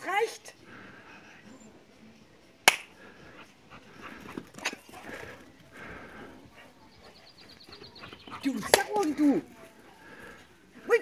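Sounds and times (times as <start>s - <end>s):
dog panting: 3.0s - 10.4s.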